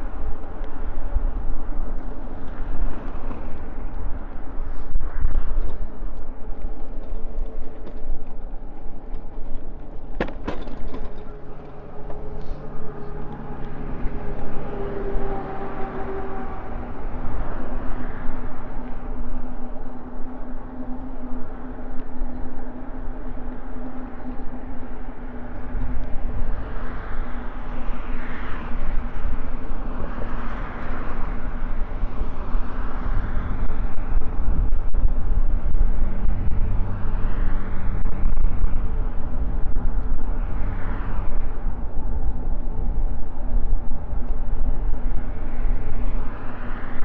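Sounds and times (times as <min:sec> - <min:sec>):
vehicles passing by: 0:00.0 - 0:47.0
wind on microphone: 0:00.0 - 0:47.0.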